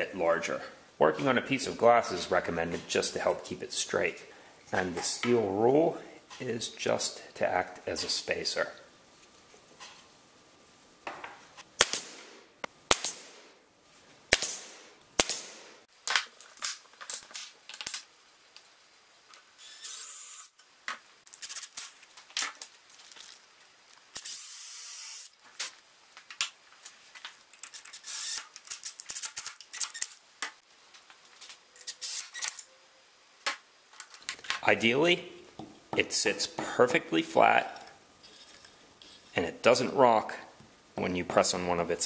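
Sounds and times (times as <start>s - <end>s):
short hissing noises: 19.6s - 20.6s, 24.1s - 25.8s, 27.7s - 30.2s, 31.8s - 32.6s.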